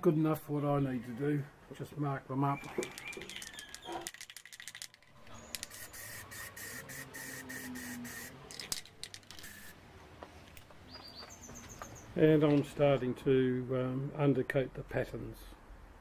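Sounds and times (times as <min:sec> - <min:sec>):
spray paint can hissing: 0:03.0 - 0:09.8.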